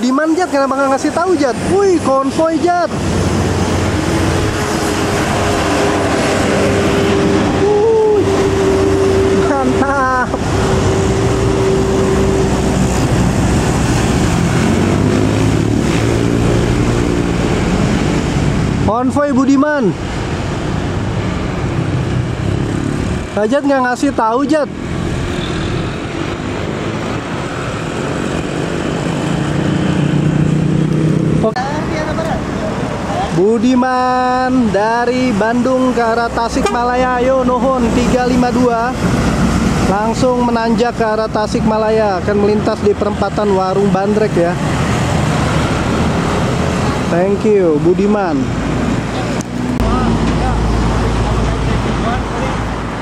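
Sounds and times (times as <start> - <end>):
buses passing: 0.0 - 53.0
vehicle engine drone: 0.0 - 53.0
steady tone: 2.2 - 18.9.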